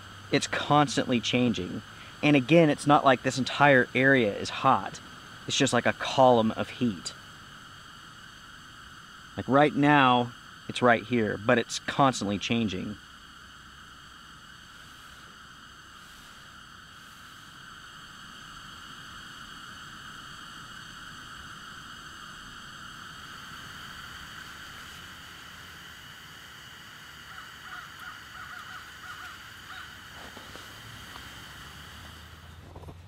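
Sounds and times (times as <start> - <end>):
gas heater hissing: 0.0 - 33.0
faint chirps: 0.7 - 32.6.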